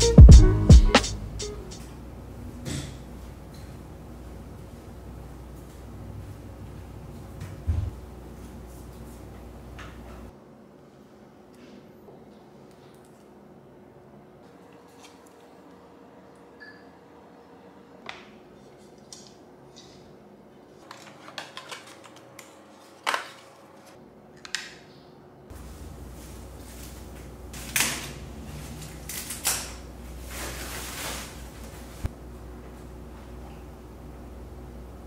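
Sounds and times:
plastic parts clicking on desk: 20.8s - 23.4s
plastic wrap rustling: 28.6s - 32.1s.

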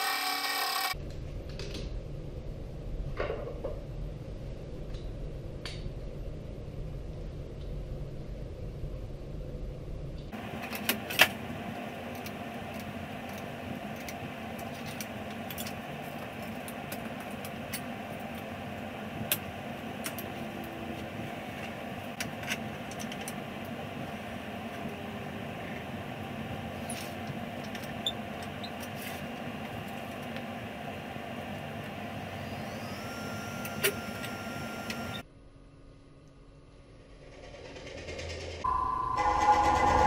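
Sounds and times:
steady hum: 38.6s - 40.0s.

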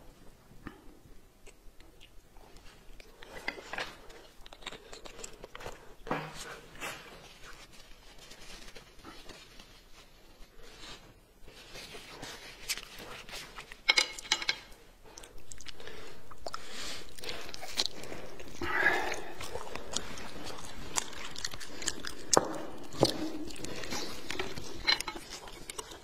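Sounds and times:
person chewing food: 0.0s - 9.8s, 11.9s - 26.0s.

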